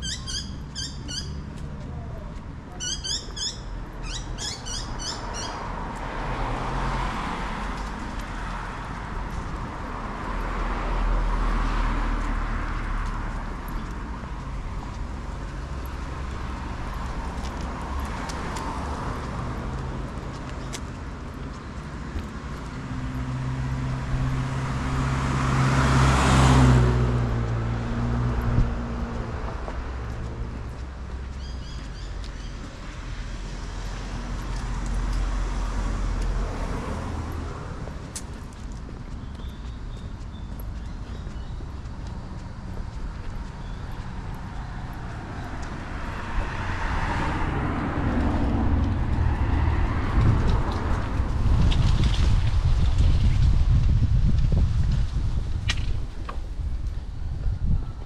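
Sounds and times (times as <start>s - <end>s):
car passing: 4.0s - 58.0s
car driving past: 22.9s - 30.8s.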